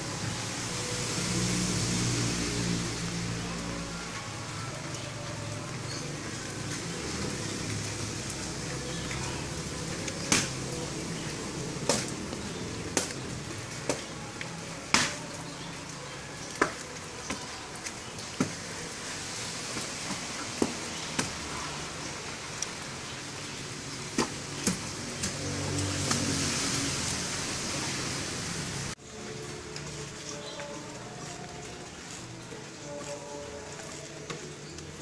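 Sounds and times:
rain hissing: 0.0 - 35.0.

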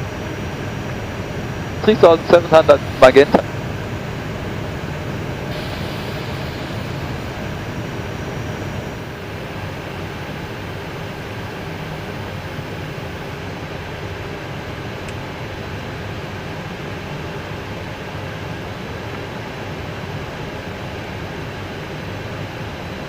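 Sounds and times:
rush of air in cockpit: 0.1 - 13.8.

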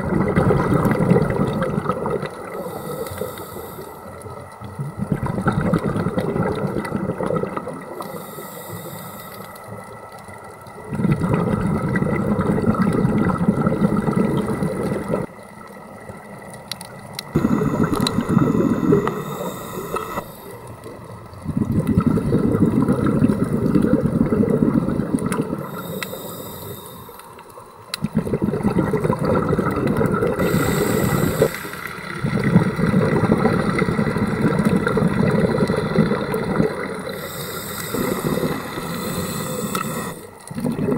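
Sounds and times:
exhaust bubbling underwater: 0.0 - 2.7, 4.2 - 8.0, 10.8 - 15.3, 17.3 - 20.3, 21.3 - 26.1, 28.0 - 40.9
regulator hiss on inhalation: 2.5 - 4.2, 8.0 - 9.7, 17.4 - 20.8, 25.6 - 27.4, 30.4 - 32.2, 37.0 - 40.4.

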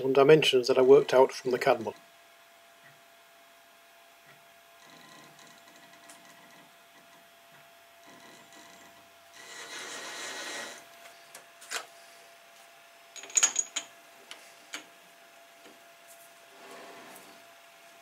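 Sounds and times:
soft scraping rustle: 16.0 - 17.5.

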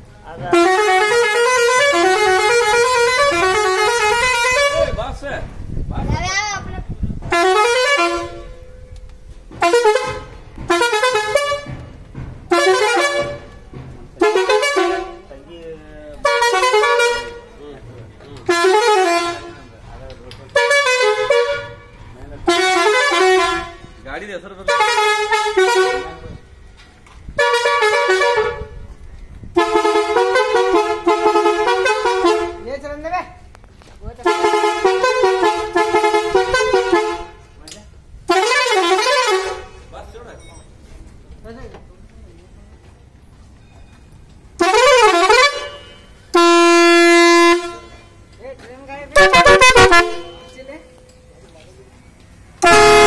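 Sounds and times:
tractor air horn blasts: 0.5 - 5.0, 7.3 - 8.7, 9.6 - 11.8, 12.5 - 13.6, 14.2 - 15.3, 16.2 - 17.5, 18.5 - 19.7, 20.6 - 21.9, 22.5 - 24.0, 24.7 - 26.3, 27.4 - 28.8, 29.5 - 32.6, 34.2 - 37.5, 38.3 - 39.8, 44.6 - 48.3, 49.2 - 50.6, 52.6 - 53.0.

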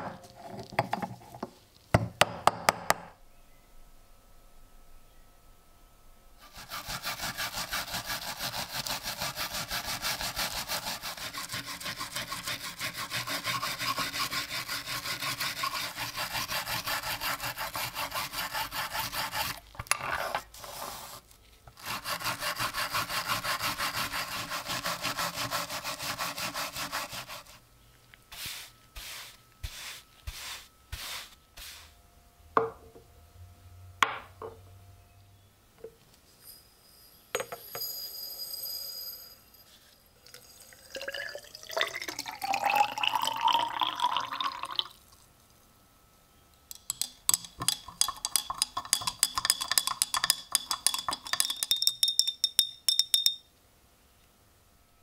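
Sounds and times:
wire brush scrubbing metal: 6.4 - 19.6, 21.8 - 27.6, 28.3 - 31.9.

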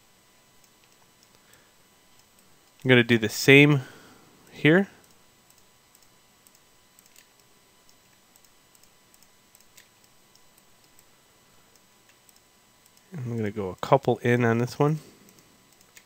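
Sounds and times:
mouse and keyboard clicks: 5.0 - 11.1.

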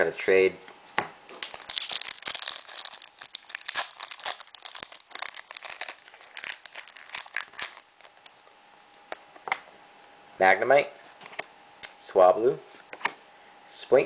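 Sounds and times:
foil wrapper crinkling and tearing: 1.3 - 9.1.

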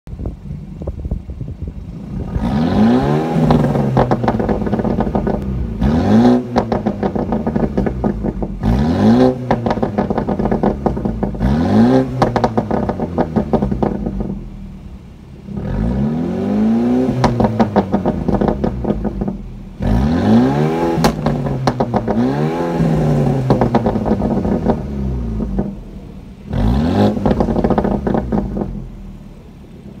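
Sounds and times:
exhaust crackling pops: 0.1 - 30.0
car engine revving: 0.4 - 30.0.

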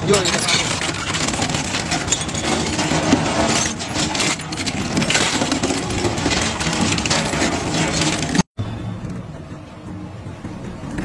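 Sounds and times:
metal crunching and cracking: 0.0 - 8.5.

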